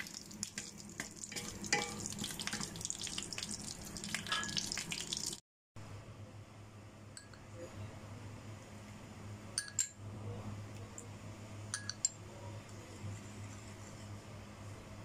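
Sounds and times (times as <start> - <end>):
spoon clinking on ceramic bowl: 1.3 - 2.6, 4.3 - 4.6, 7.2 - 7.5, 9.6 - 10.0, 11.7 - 12.2.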